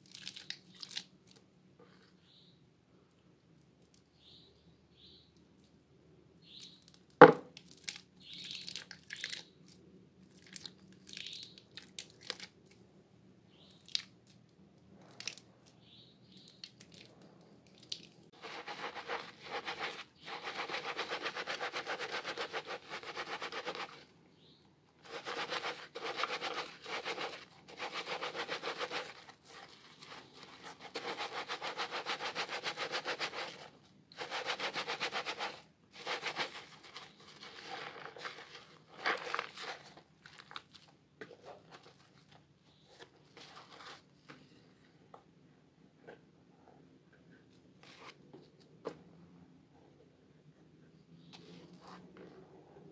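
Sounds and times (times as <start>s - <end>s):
sponges squishing in lather: 17.8s - 24.0s, 25.0s - 42.4s
crushing wet soap: 36.0s - 42.4s.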